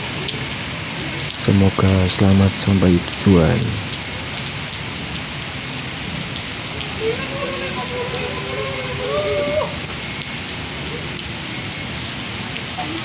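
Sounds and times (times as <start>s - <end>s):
heavy rain on pavement: 0.0s - 13.0s.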